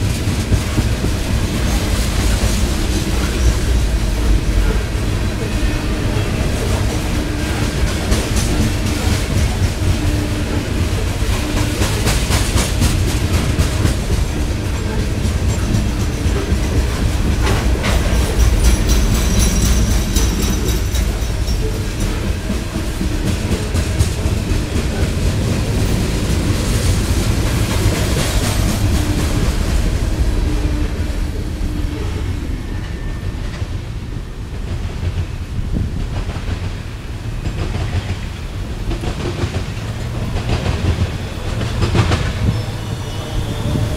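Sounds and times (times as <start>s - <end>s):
wheels clacking over rail joints: 0.0s - 31.3s, 32.8s - 43.9s
train rumbling: 0.0s - 43.9s.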